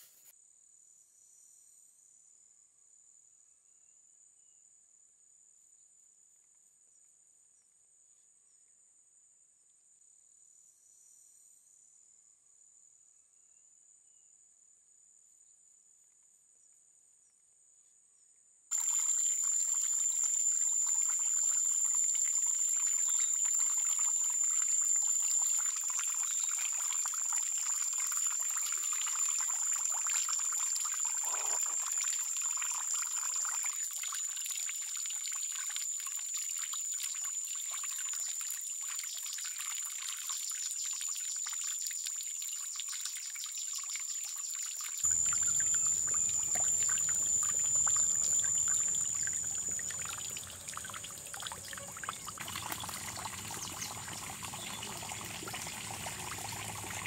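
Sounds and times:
water trickling and pouring: 0:18.7 - 0:57.0
high-pitched whine: 0:45.1 - 0:51.2.

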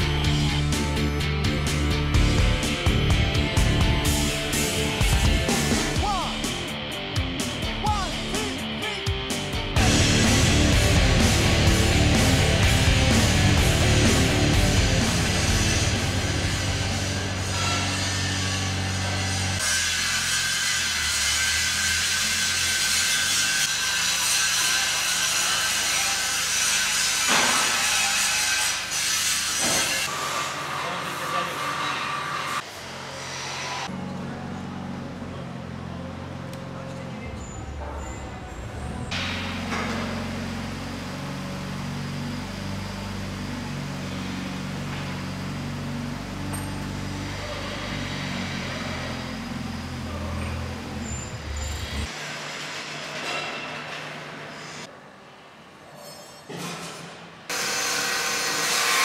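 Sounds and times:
angle grinder grinding steel: 0:09.8 - 0:34.0
forklift engine humming: 0:33.9 - 0:52.1.

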